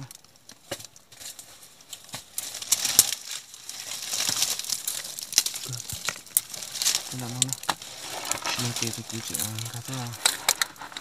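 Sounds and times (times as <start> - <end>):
dry leaves rustling: 0.0 - 11.0
sharp clicks and scrapes: 4.0 - 11.0.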